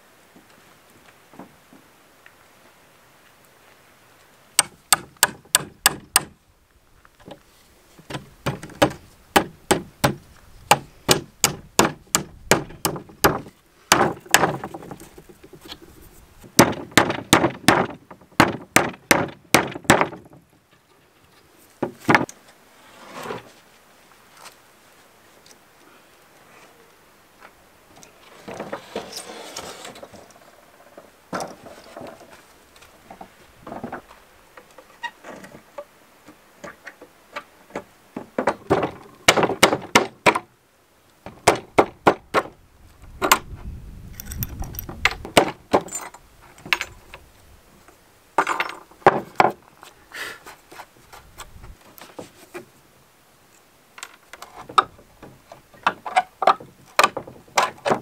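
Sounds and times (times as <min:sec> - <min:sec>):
plank scraping on sawhorses: 0:07.2 - 0:23.7, 0:28.0 - 0:40.4, 0:48.4 - 0:52.8, 0:54.2 - 0:58.0.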